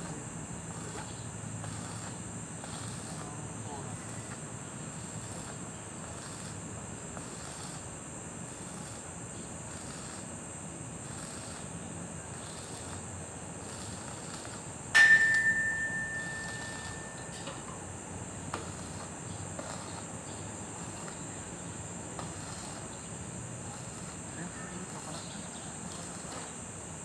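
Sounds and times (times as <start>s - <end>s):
crickets chirping: 0.0s - 27.0s
ringing metallic strike: 15.0s - 18.0s.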